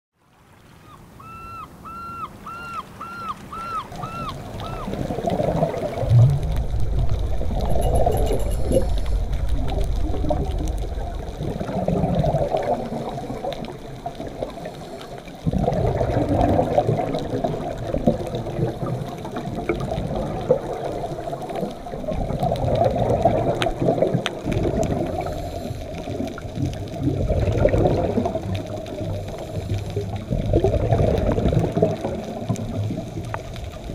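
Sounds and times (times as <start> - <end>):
underwater regulator bubbles gurgling: 3.7 - 33.9
short high chirps: 7.5 - 9.3.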